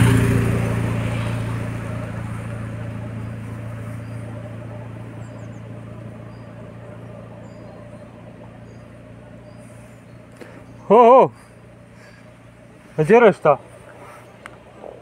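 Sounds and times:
car driving away: 0:00.0 - 0:15.0
faint high bird chirps: 0:03.2 - 0:12.2.

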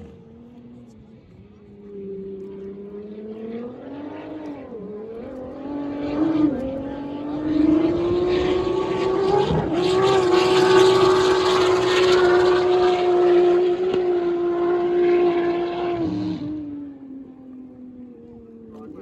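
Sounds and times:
powerboat engine high revs: 0:04.8 - 0:16.6.

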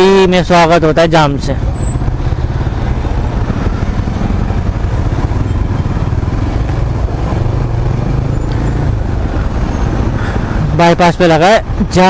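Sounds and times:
motorcycle engine running: 0:01.6 - 0:10.6.

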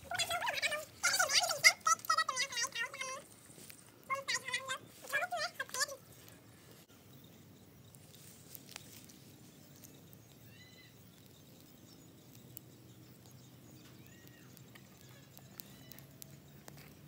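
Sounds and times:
twig fire crackling: 0:00.0 - 0:17.0
high animal call: 0:10.4 - 0:11.0.

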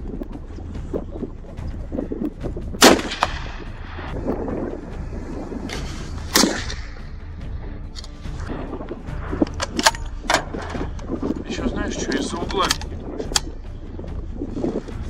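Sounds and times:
low wind rumble: 0:00.0 - 0:15.0
rifle shots with echo: 0:02.8 - 0:03.7, 0:06.3 - 0:06.9.

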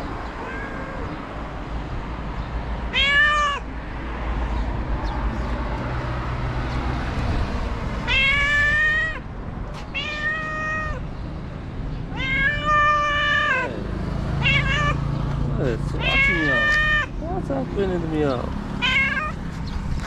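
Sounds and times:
cat meowing: 0:00.2 - 0:01.5, 0:02.9 - 0:03.7, 0:08.0 - 0:11.2, 0:12.0 - 0:13.8, 0:14.4 - 0:15.2, 0:15.9 - 0:17.2, 0:18.8 - 0:19.4.

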